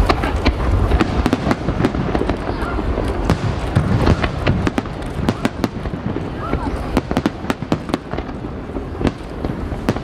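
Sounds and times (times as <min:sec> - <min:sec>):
fireworks cracks and bangs: 0:00.0 - 0:10.0.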